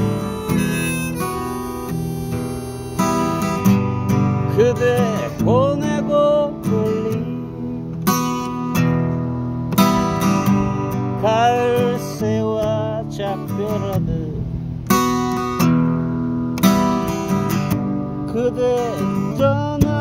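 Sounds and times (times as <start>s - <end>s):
harmonica melody with bent notes: 0.0s - 5.1s
acoustic guitar strumming: 0.0s - 20.0s.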